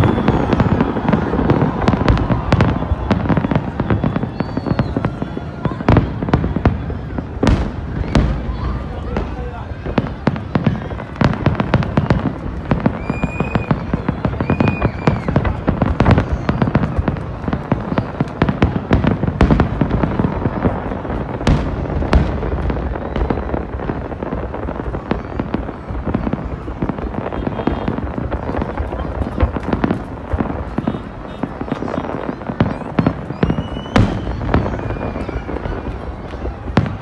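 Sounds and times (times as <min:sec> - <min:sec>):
high firework whistles: 0:00.0 - 0:17.2, 0:17.8 - 0:37.0
fireworks cracking and banging: 0:00.0 - 0:37.0.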